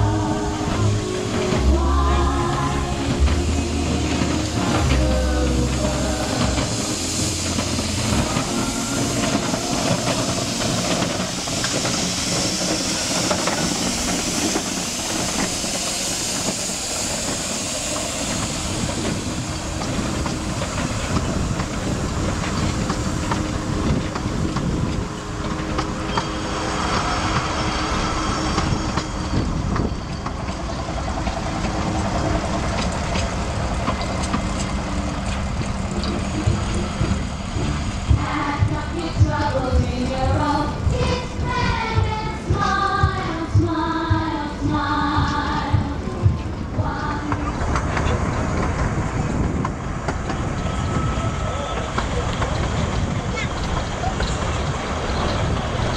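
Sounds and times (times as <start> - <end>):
steam hissing from locomotive: 0.0 - 55.9
wheels clicking over track: 0.0 - 55.9.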